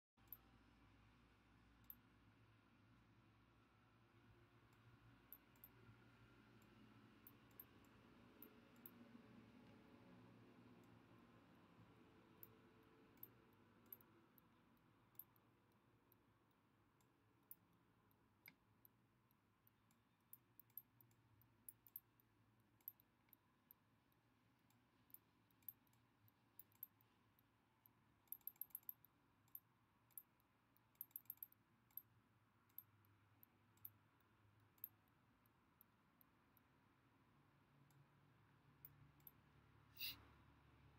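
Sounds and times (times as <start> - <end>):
computer mouse clicks: 28.2 - 30.3, 30.9 - 32.1, 40.0 - 40.2.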